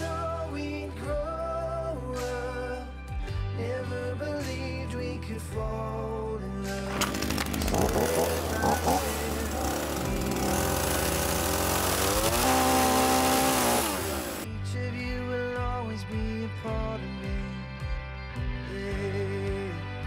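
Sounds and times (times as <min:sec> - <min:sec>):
chainsaw cutting wood: 0:06.8 - 0:14.5.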